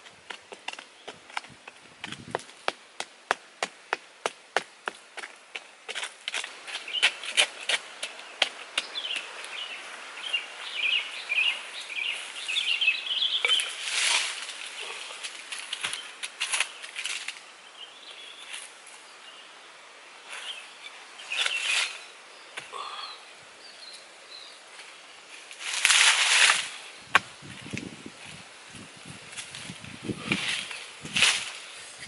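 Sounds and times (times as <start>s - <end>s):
hands scraping in dry soil: 6.0s - 17.4s, 20.2s - 22.1s, 25.4s - 32.0s
birds chirping: 6.8s - 7.3s, 8.0s - 17.0s, 17.6s - 25.4s.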